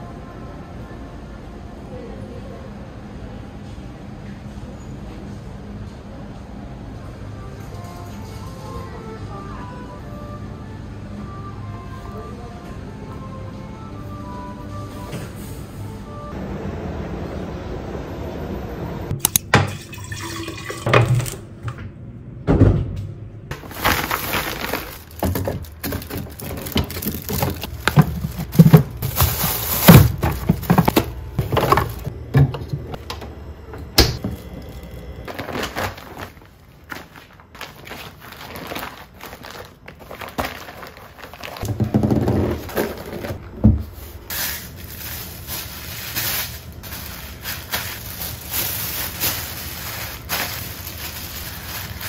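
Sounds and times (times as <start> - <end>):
groceries knocking and thudding: 22.5 - 33.3, 34.0 - 52.0.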